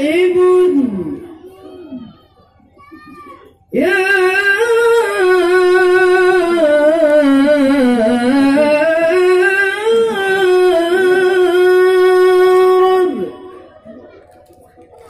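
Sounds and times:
man singing melismatic vowel: 0.0s - 1.4s, 3.7s - 13.5s.

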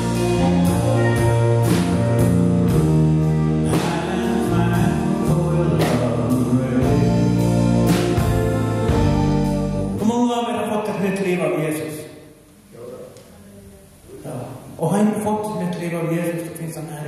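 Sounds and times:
drum accents: 0.0s - 10.2s
gospel rock song: 0.0s - 11.9s.

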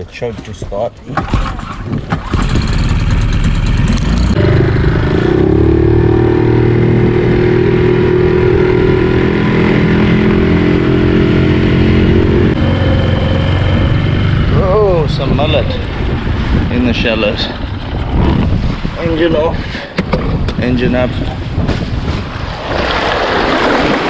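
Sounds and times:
outboard motor running: 1.2s - 19.0s.

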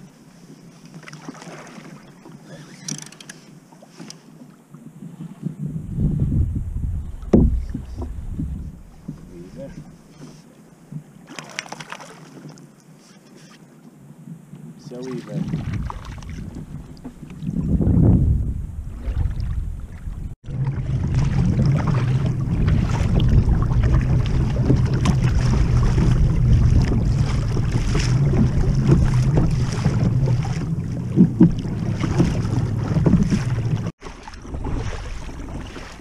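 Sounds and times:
water splashing against hull: 0.0s - 13.8s, 14.6s - 36.0s
wind buffeting microphone: 4.9s - 9.9s, 15.4s - 36.0s.

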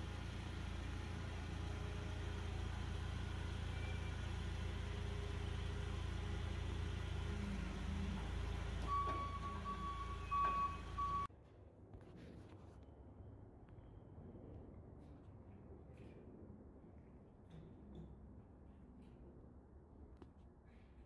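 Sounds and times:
forklift engine running: 0.0s - 11.3s.

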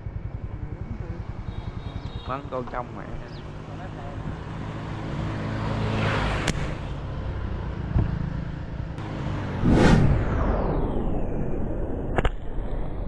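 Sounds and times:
vehicle engine running: 0.0s - 6.0s
sharp snap: 6.4s - 6.7s, 12.1s - 12.5s
rushing noise: 9.2s - 12.1s.

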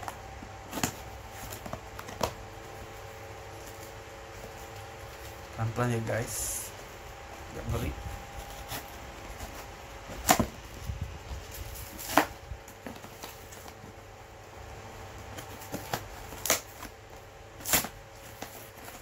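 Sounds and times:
packing material rustling: 0.0s - 19.0s.

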